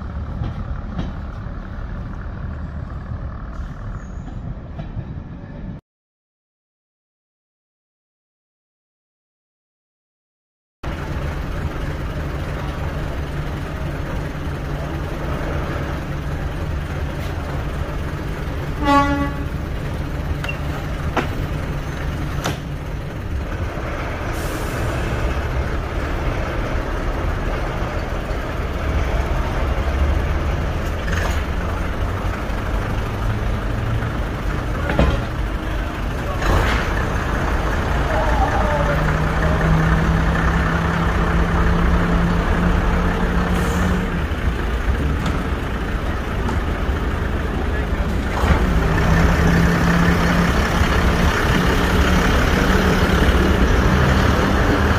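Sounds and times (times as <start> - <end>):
train diesel engines running: 0.0 - 5.8, 10.8 - 54.9
train horn toot: 18.8 - 19.6.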